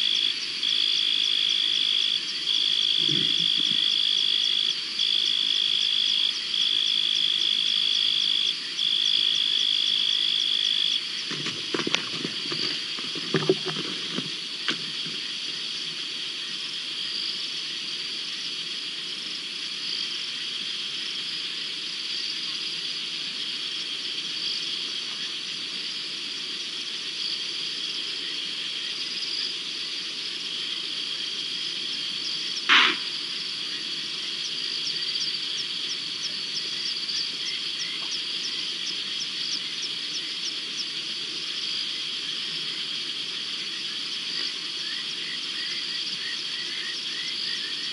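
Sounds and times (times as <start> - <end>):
frogs and insects trilling: 0.0 - 47.9
clicking animal call: 32.7 - 33.1
short loud sound: 32.7 - 33.1.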